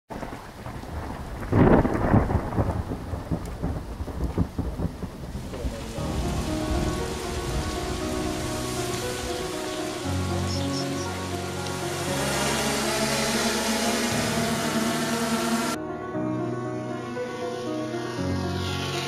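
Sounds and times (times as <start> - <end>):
thunder cracking and rumbling: 0.1 - 10.5
steady rain: 0.1 - 15.8
music with long held notes: 5.6 - 19.0.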